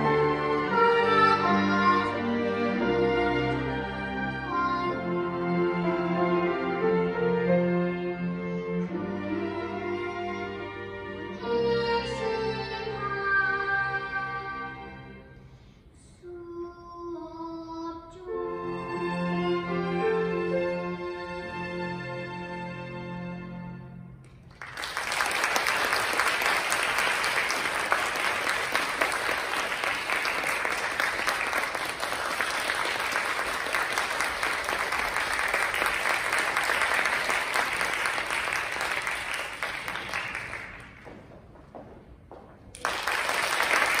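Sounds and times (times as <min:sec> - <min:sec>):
string ensemble piece: 0:00.0 - 0:15.7, 0:18.3 - 0:41.2
audience applauding: 0:24.4 - 0:41.1, 0:42.7 - 0:44.0.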